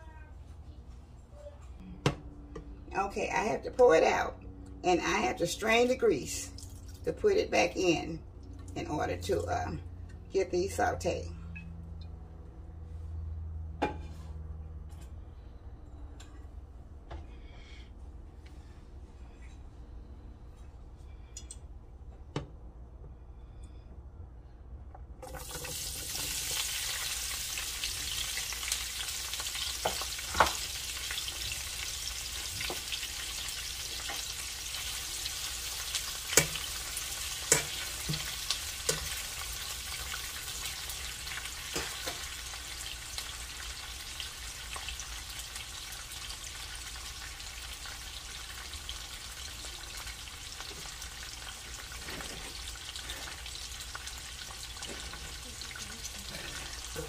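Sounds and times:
vegetables sizzling in oil: 0:25.3 - 0:57.0.

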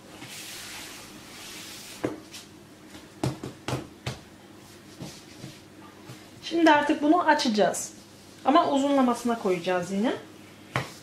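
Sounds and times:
palms patting dough: 0:08.4 - 0:11.0.

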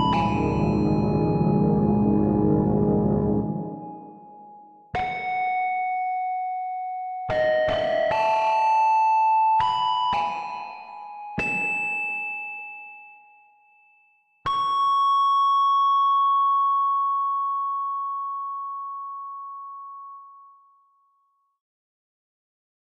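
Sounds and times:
bell-like struck tones: 0:00.0 - 0:02.4, 0:11.4 - 0:16.8.

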